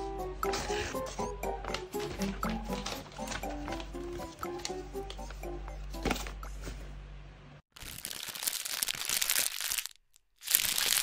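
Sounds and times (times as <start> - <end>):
background music: 0.0 - 6.8
paper crinkling and crumpling: 1.6 - 5.4, 7.8 - 11.0.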